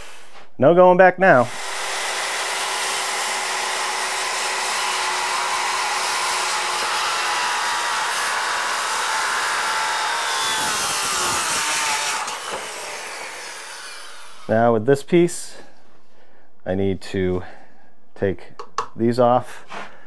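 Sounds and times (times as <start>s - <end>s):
circular saw cutting steel: 1.5s - 14.5s.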